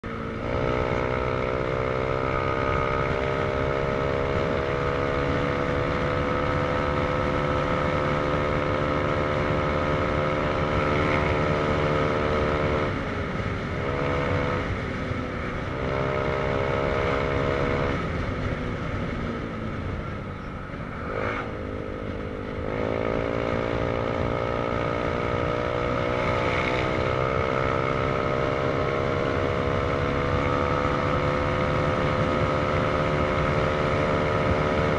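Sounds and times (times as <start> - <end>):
motorcycle engine running: 0.0 - 34.9
road and wind noise: 0.0 - 34.9.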